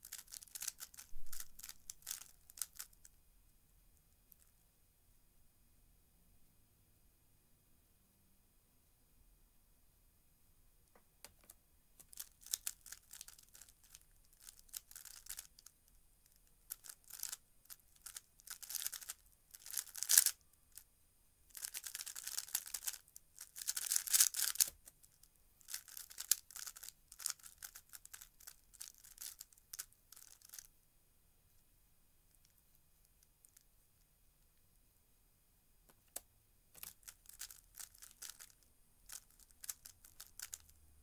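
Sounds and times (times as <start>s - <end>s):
puzzle cube clicking and rustling: 0.0s - 3.1s, 11.2s - 20.4s, 21.5s - 30.7s, 36.8s - 40.7s.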